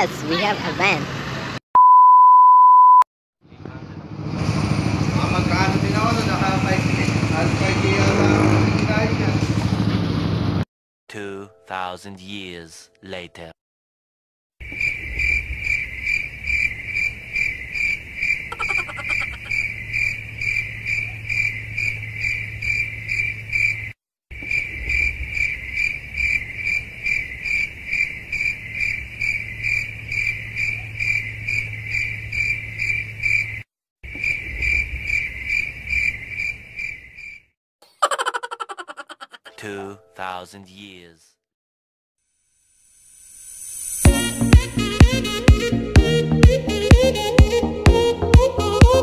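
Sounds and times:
cricket chirping: 14.6s - 37.5s.

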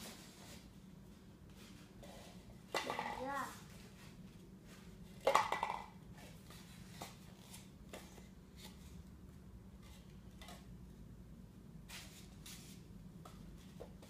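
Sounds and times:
styrofoam cups clicking on wood floor: 5.2s - 6.0s.

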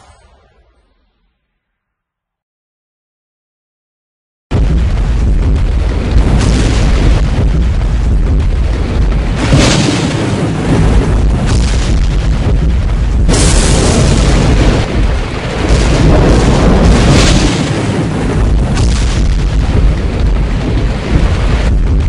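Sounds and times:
heavy low rumble: 4.5s - 22.0s.

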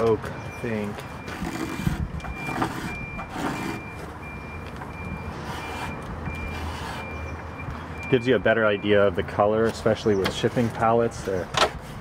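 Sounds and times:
reversing alarm beeping: 0.0s - 9.2s
blade scraping wooden board: 1.2s - 4.0s, 5.3s - 7.2s.

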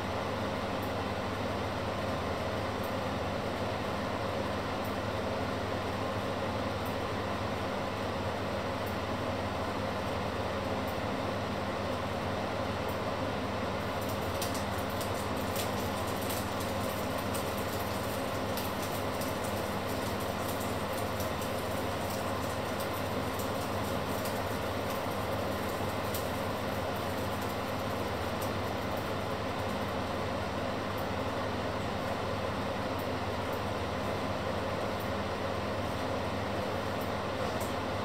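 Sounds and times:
steady mechanical hum: 0.0s - 38.0s.

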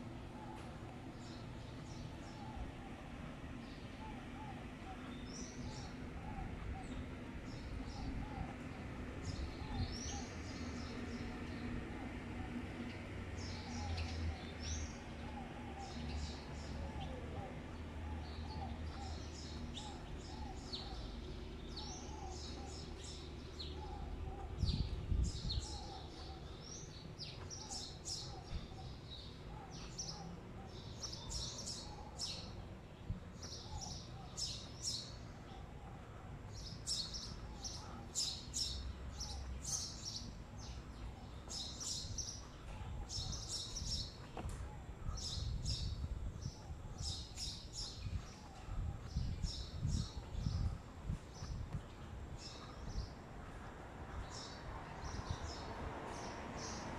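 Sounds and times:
city background rumble: 0.0s - 56.9s
small birds chirping: 0.0s - 56.9s.

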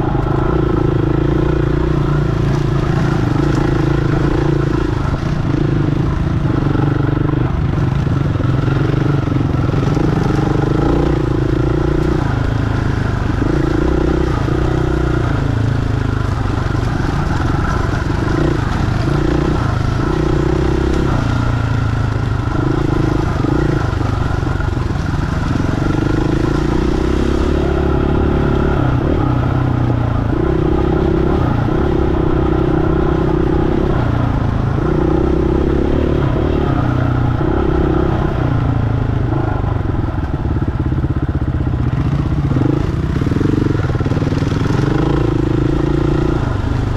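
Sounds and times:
dirt bike engine revving: 0.0s - 39.6s, 41.8s - 46.9s.

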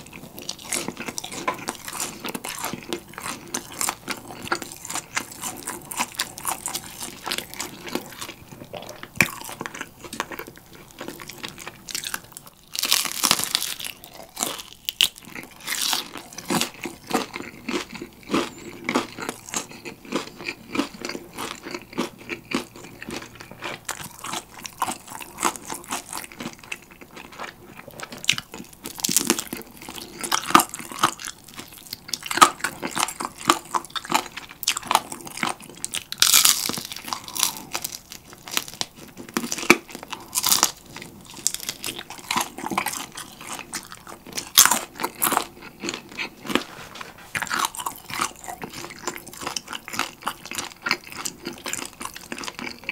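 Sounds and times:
crunchy chewing: 0.0s - 52.9s.

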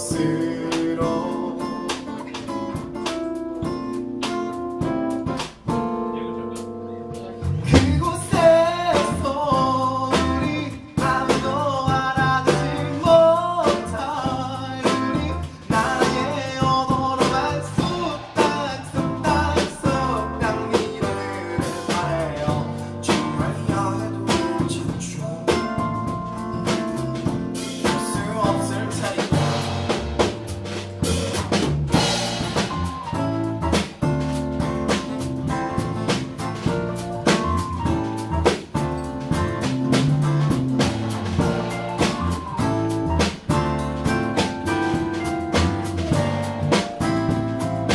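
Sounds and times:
man singing into a microphone: 0.0s - 2.1s, 7.5s - 29.8s
acoustic guitar: 0.0s - 47.9s
drums keeping a steady beat: 0.0s - 47.9s
electric bass: 0.0s - 47.9s.

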